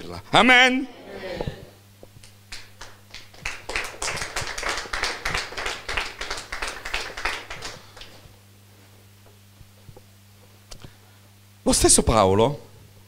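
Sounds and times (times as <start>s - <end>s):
congregation applauding: 2.5s - 8.2s.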